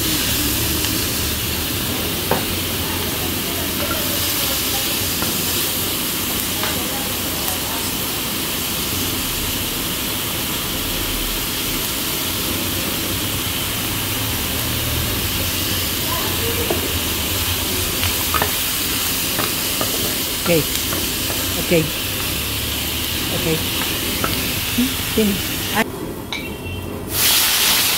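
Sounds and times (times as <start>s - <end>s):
seafood sizzling in a skillet: 0.0s - 25.9s, 27.1s - 27.9s
wooden spoon stirring: 16.6s - 25.7s.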